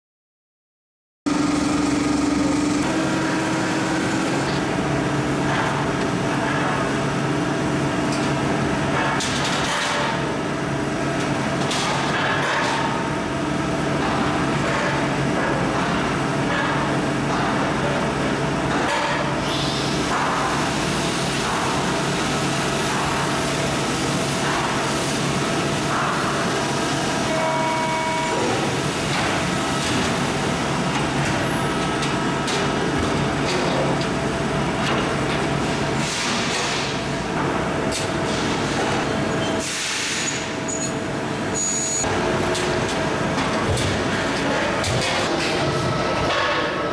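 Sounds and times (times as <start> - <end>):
short machine whine: 1.3 - 4.8, 27.1 - 28.8
machine hum: 1.3 - 9.0.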